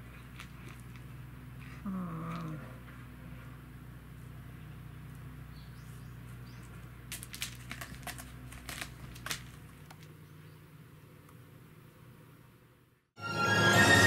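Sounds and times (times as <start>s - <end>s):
cat clawing scratching post: 6.7s - 10.0s.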